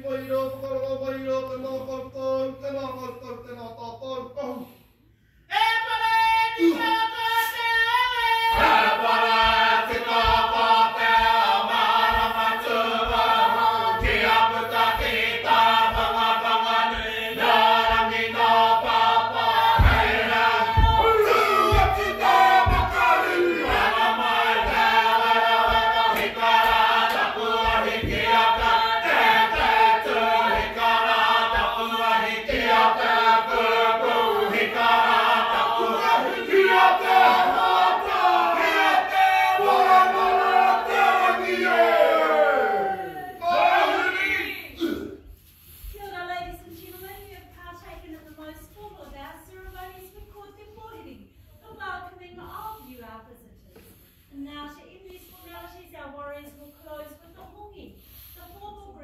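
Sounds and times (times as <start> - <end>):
group singing: 6.6 - 45.3
low regular thumps: 8.5 - 35.8.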